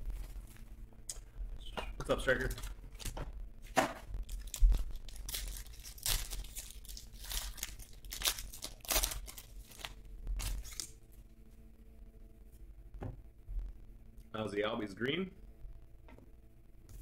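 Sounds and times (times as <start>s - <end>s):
foil wrapper tearing: 4.2s - 11.0s
low thump: 12.9s - 13.7s.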